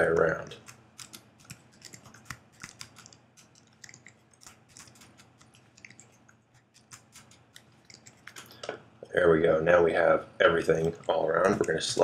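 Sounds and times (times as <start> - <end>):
computer keyboard keys clicking: 0.0 - 8.4
low steady hum: 0.0 - 12.0.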